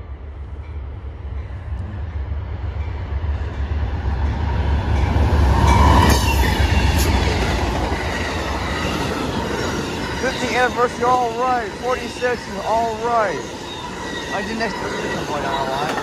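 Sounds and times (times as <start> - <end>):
diesel locomotive rumble passing: 0.0 - 16.0
wheels clicking on rails: 14.3 - 16.0.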